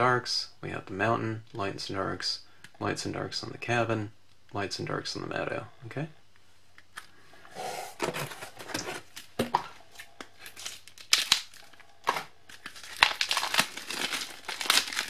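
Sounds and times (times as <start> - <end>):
plastic wrapping crinkling and tearing: 8.0 - 15.0.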